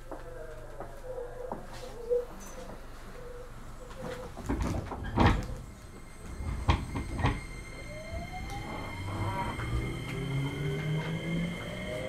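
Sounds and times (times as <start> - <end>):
electric train inverter whine: 0.0 - 12.0
train doors shutting with a thud: 4.0 - 12.0.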